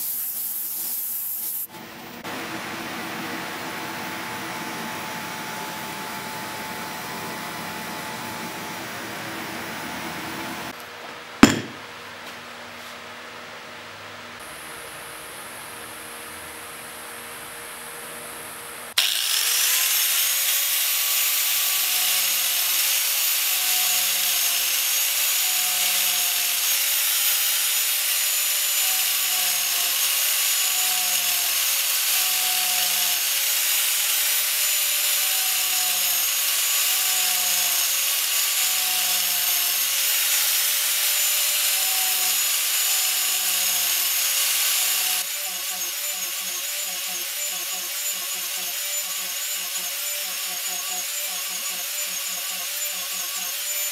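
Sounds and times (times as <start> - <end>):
angle grinder carving wood: 19.0 - 53.9.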